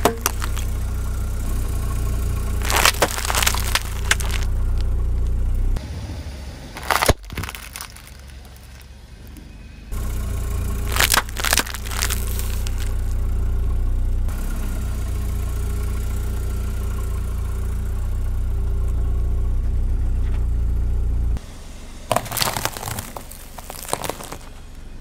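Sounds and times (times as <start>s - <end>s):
tyre crackling over wrapped sweets: 0.0s - 0.7s, 2.6s - 4.8s, 6.8s - 8.9s, 10.9s - 13.2s, 22.1s - 24.7s
crackers crunching: 0.0s - 0.8s, 2.4s - 5.4s, 6.8s - 8.9s, 10.8s - 13.2s, 22.1s - 24.8s
car engine idling: 0.0s - 25.0s.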